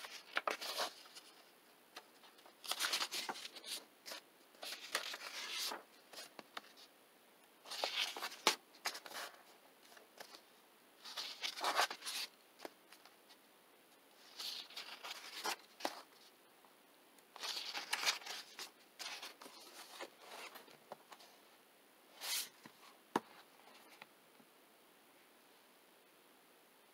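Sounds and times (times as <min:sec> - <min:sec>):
book pages turning: 0:00.0 - 0:06.9, 0:07.6 - 0:10.4, 0:11.0 - 0:13.2, 0:14.2 - 0:16.3, 0:17.4 - 0:21.3, 0:22.2 - 0:24.1.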